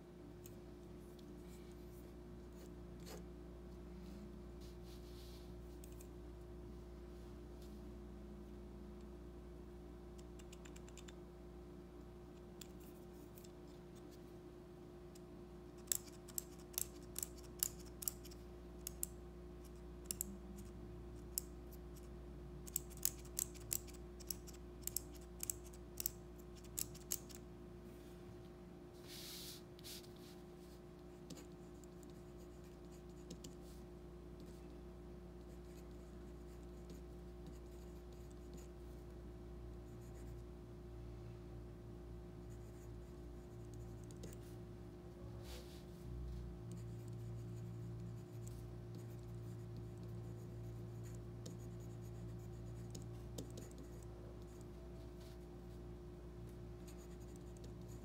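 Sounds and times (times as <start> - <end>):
pencil lead scratching on paper: 46.7 - 55.4, 56.8 - 58.0.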